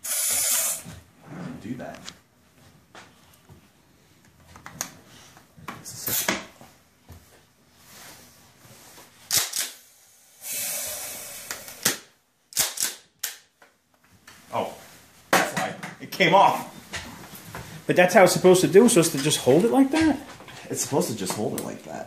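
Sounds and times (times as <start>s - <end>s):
gas hiss: 0.0s - 1.0s, 9.8s - 11.9s
airsoft shotgun action clacks: 12.6s - 13.4s.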